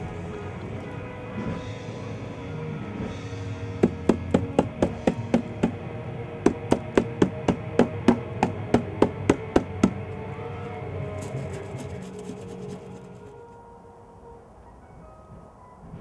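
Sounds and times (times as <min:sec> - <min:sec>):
hand slapping plastic jug: 0:06.5 - 0:10.0.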